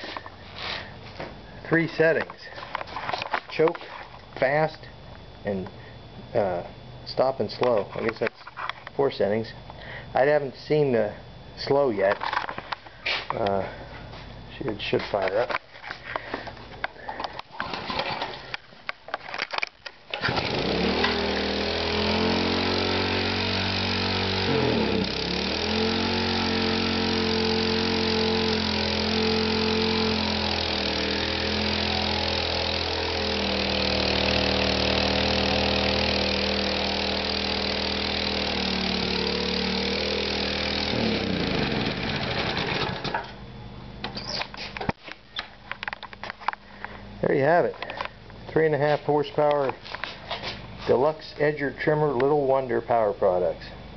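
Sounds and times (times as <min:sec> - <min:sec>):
small engine running: 0:17.6 - 0:18.6, 0:20.1 - 0:43.4.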